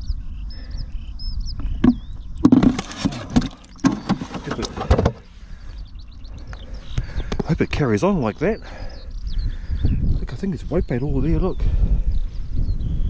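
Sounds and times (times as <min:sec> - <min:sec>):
wind rumbling on microphone: 0:00.0 - 0:13.0
plastic containers knocking and rustling: 0:01.6 - 0:05.3.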